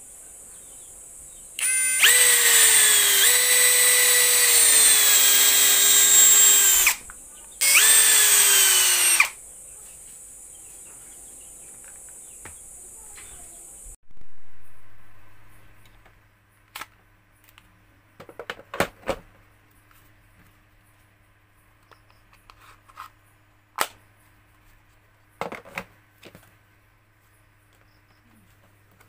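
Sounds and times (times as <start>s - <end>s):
faint low hum: 5.0s - 18.3s.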